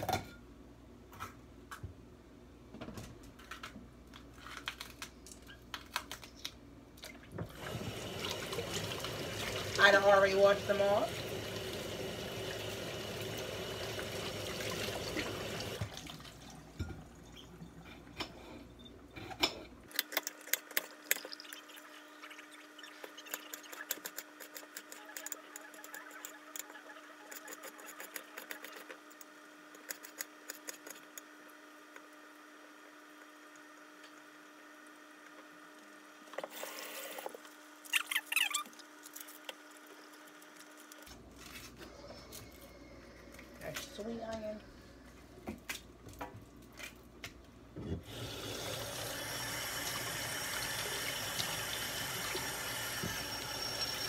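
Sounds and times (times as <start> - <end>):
tap running: 47.8 - 54.0.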